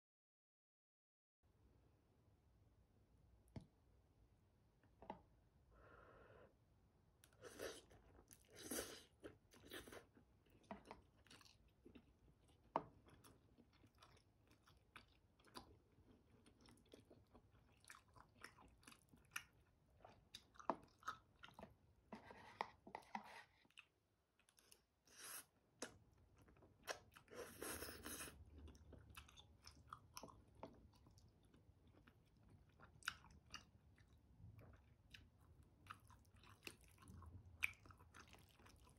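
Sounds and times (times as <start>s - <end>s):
person chewing noodles: 7.2s - 38.9s
slurping: 27.2s - 28.6s.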